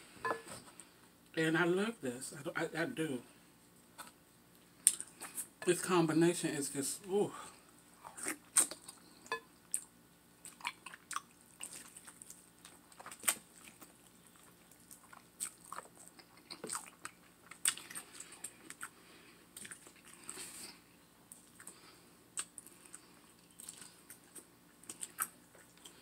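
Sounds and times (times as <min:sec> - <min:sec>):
person chewing with wet mouth smacks: 0:09.7 - 0:20.6, 0:21.3 - 0:26.0.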